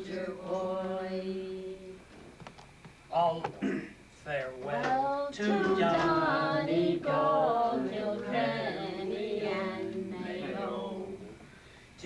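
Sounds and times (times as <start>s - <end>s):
group singing unaccompanied: 0.0s - 2.0s, 4.6s - 11.5s.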